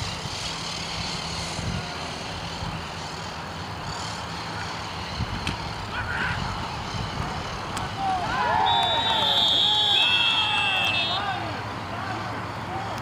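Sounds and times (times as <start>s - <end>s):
low outdoor rumble: 0.0s - 13.0s
distant shout: 7.7s - 13.0s.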